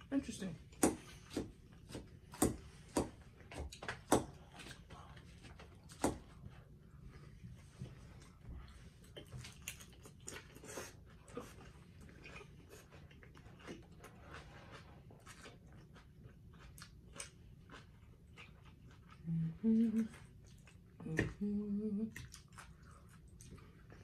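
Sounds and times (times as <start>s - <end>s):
chewing crunchy salad: 7.8s - 21.4s, 22.1s - 24.0s.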